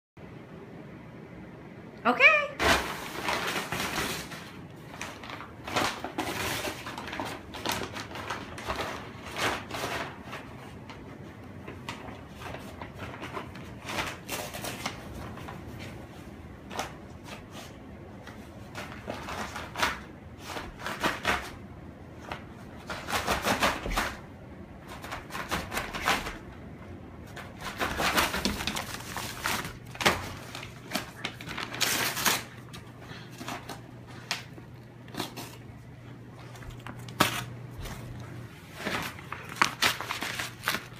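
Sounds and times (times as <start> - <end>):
paper bag crinkling and ripping: 2.6 - 15.7, 27.3 - 40.9.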